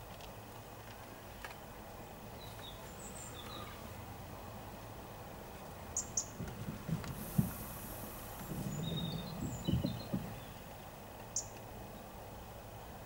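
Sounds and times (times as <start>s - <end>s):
low thuds: 6.3s - 10.9s
high bird chirps: 8.4s - 10.6s.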